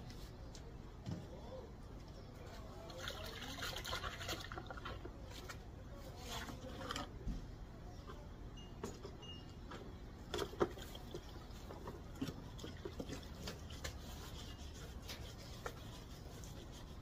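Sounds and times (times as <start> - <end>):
scrubbing on plastic: 10.2 - 17.0.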